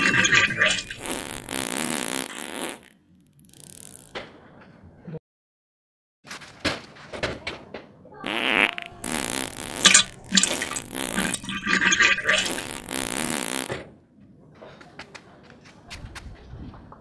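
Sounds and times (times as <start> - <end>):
fart noises: 0.0 - 4.3, 8.2 - 13.9.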